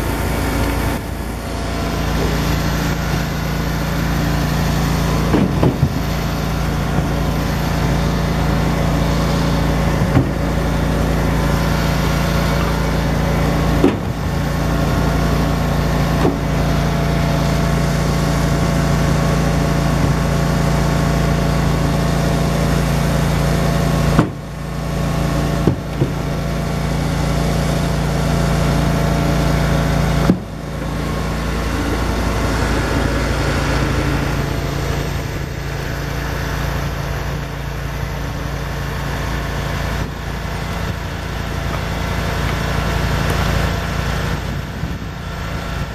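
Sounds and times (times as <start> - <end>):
firewood processor engine drone: 0.0 - 45.9
firewood knocking on conveyor: 2.0 - 17.1, 23.2 - 26.9, 28.9 - 32.0.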